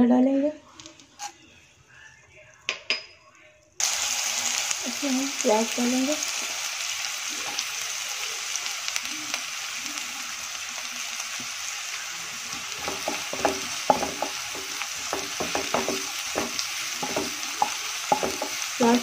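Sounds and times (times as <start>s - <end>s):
onions sizzling in butter: 0.6s - 1.4s, 3.8s - 19.0s
spatula scraping and tapping pan: 12.6s - 19.0s.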